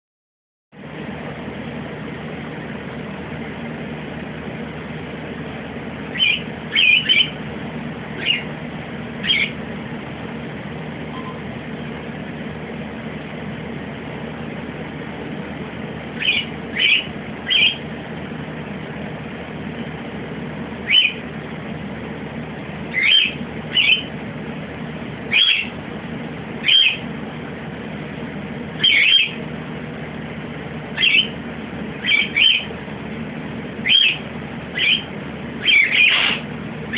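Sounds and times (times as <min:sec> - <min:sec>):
low background hum: 0:00.8 - 0:36.9
pet chirping: 0:06.1 - 0:07.4, 0:08.2 - 0:08.5, 0:09.2 - 0:09.6, 0:16.2 - 0:17.8, 0:20.8 - 0:21.2, 0:22.9 - 0:24.1, 0:25.3 - 0:25.8, 0:26.6 - 0:27.1, 0:28.8 - 0:29.4, 0:31.0 - 0:31.4, 0:32.0 - 0:32.7, 0:33.8 - 0:36.5.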